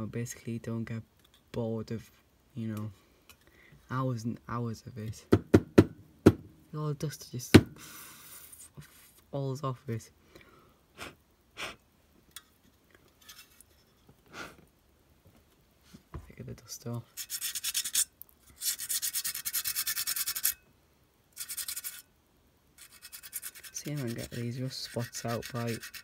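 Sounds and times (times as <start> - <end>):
sandpaper rasping on metal: 17.1 - 20.6, 21.4 - 22.0, 22.8 - 26.0.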